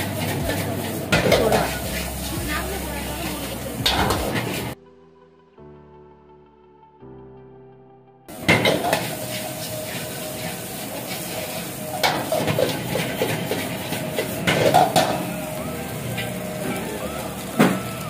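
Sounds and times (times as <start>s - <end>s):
frying hiss: 0.0s - 4.8s, 8.3s - 18.0s
soft background music: 0.0s - 18.0s.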